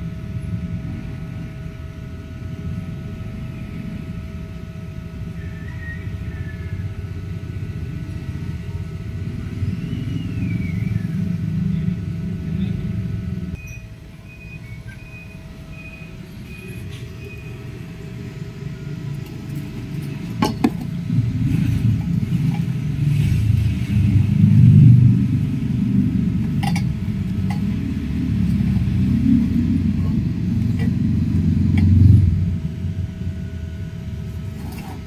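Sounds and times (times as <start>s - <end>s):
low rumble: 20.9s - 34.3s
tools clinking on metal pipe: 26.5s - 27.7s.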